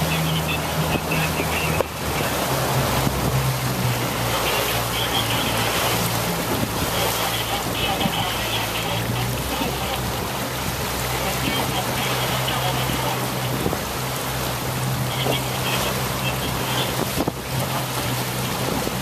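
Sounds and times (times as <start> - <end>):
water rushing along a hull: 0.0 - 19.0
wind buffeting the microphone: 16.9 - 19.0.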